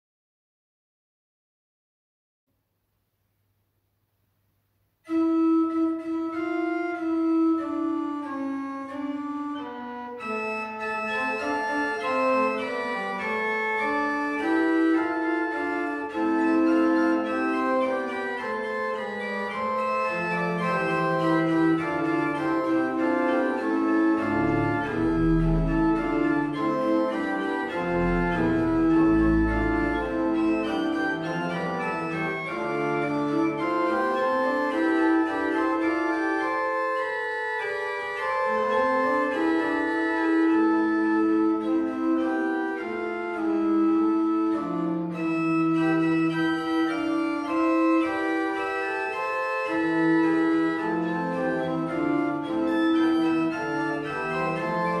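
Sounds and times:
pipe organ playing: 5.1s - 55.0s
deep organ bass notes: 10.4s - 37.1s.

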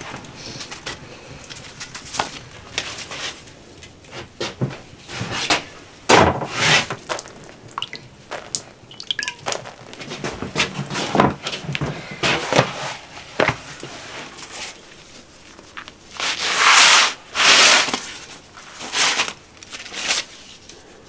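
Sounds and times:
rustling scrape of flatbread: 1.6s - 4.3s, 6.5s - 7.2s, 12.2s - 20.8s.

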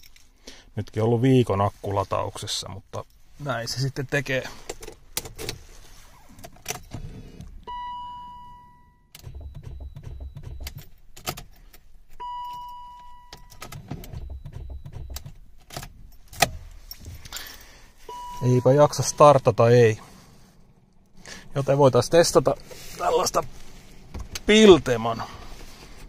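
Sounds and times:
keys rattling and clicking: 0.0s - 0.4s
dashboard warning chime: 7.5s - 10.9s, 12.2s - 15.4s, 16.8s - 20.1s
car starter cranking: 9.2s - 12.8s.

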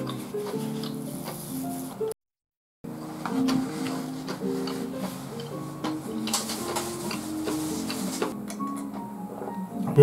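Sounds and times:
music of held notes: 2.9s - 10.0s.

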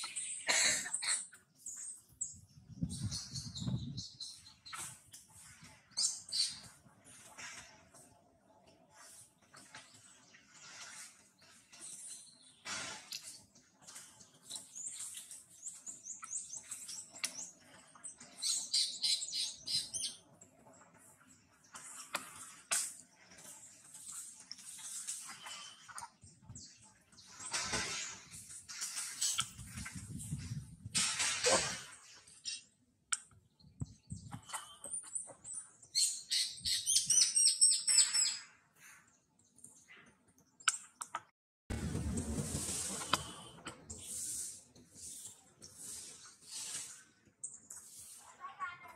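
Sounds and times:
bird chirping: 0.0s - 4.9s, 14.3s - 20.2s, 32.3s - 38.6s
birds chirping: 0.0s - 7.3s, 9.0s - 22.6s
harsh scratchy bird sound: 0.0s - 8.1s, 8.9s - 31.1s, 42.2s - 48.9s.

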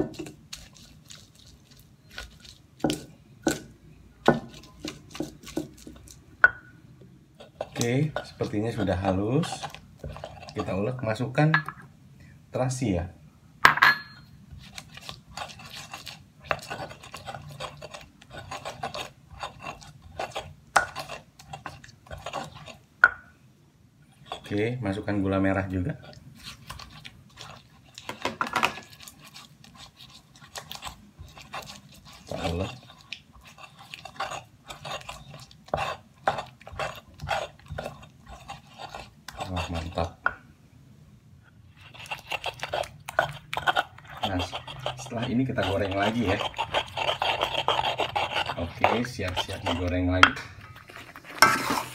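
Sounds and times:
stone pestle grinding: 0.0s - 6.2s, 7.4s - 10.8s, 13.8s - 23.2s, 24.2s - 24.6s, 26.0s - 40.2s, 41.7s - 51.9s
stone knocking on stone: 13.7s - 14.2s.

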